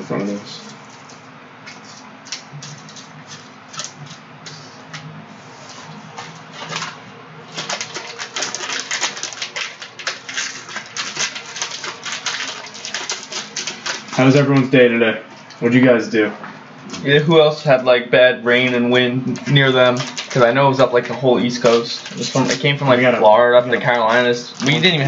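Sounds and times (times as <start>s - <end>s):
foil wrappers crinkling and tearing: 5.8s - 14.7s, 18.6s - 23.1s, 23.8s - 25.0s.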